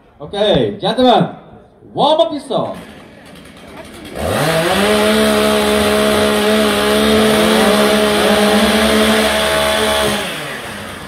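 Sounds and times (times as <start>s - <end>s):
chainsaw revving at full throttle: 2.6s - 11.0s.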